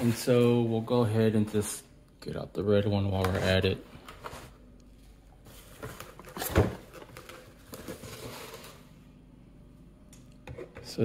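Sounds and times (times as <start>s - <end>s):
cardboard and paper handling: 5.4s - 8.8s.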